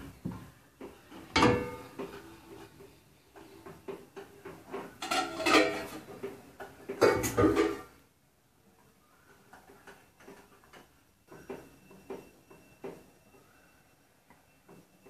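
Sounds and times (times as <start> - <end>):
steel dishes clattering in rack: 5.0 - 6.1.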